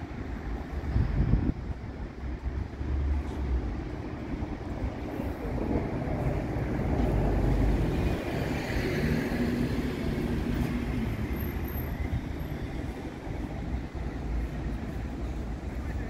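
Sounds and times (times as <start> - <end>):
faint train whine: 0.0 - 16.0
train low rumble: 0.0 - 16.0.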